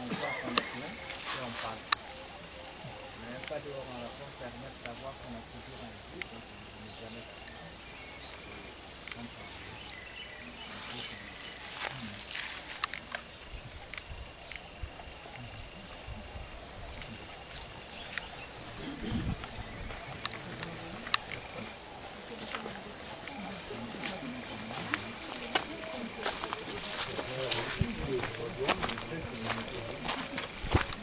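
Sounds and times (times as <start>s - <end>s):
insects trilling: 0.0s - 31.0s
faint chirps and clicks: 6.1s - 6.4s, 9.0s - 15.2s, 17.0s - 21.8s.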